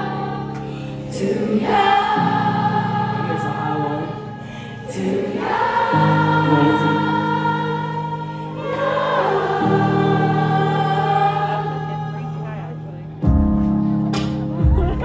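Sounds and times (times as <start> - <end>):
crowd singing along: 0.0 - 15.0
sustained keyboard chords: 0.0 - 15.0.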